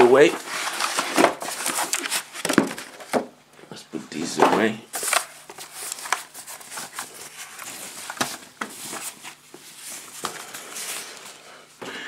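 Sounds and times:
plastic wrapping rustling: 0.0s - 3.2s, 4.9s - 11.5s.

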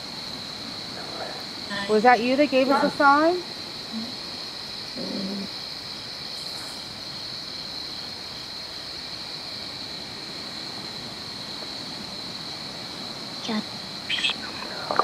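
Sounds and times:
background hiss: 0.0s - 15.0s
insects droning: 0.0s - 15.0s.

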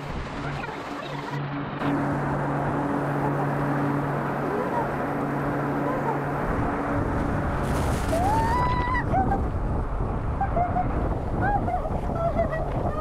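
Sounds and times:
child crying out: 8.2s - 9.4s.

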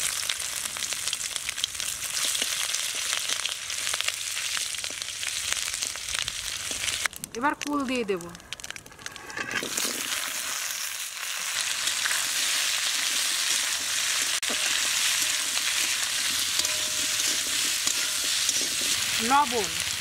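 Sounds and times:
fruit sizzling in hot oil: 0.0s - 20.0s
metal spatula stirring: 11.8s - 20.0s.

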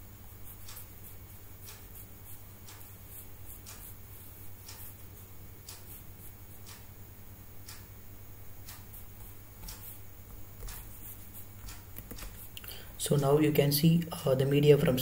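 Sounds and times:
low steady hum: 0.0s - 15.0s
faint ticks: 1.6s - 3.0s, 4.6s - 5.0s, 5.6s - 6.0s, 6.6s - 7.0s, 7.6s - 7.9s, 8.6s - 12.8s.

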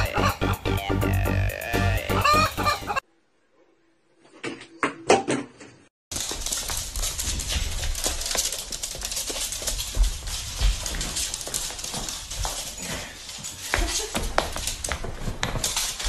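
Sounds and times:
electronic music: 0.0s - 3.0s
dog claws clicking on hard floor: 6.1s - 16.0s.

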